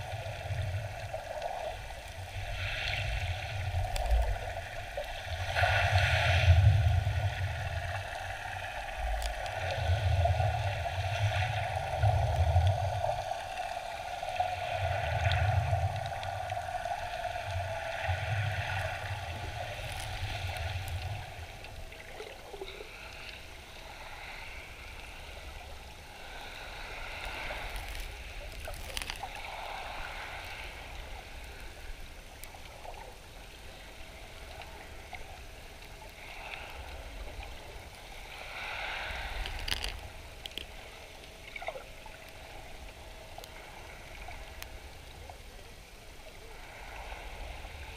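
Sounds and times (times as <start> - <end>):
steady underwater hum: 0.0 - 47.9
small clicks: 27.6 - 29.4, 39.4 - 40.8.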